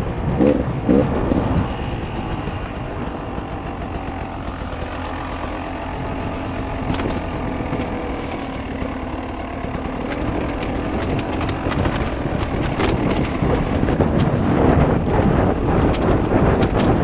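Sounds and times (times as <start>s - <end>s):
two-stroke motorcycle engine: 0.0s - 17.0s
clicks and knocks from rough ground: 4.2s - 14.8s, 15.7s - 17.0s.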